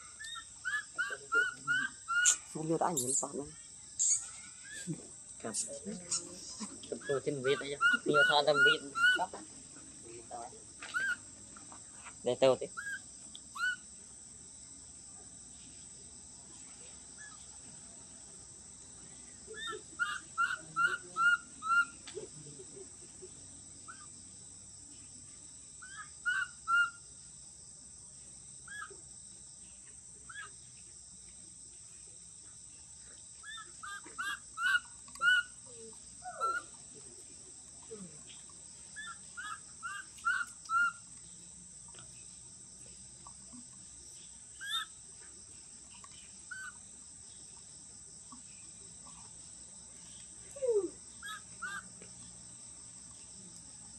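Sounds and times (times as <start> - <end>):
insect hum: 0.0 - 53.9
short high chirping calls: 0.2 - 3.3, 4.0 - 4.9.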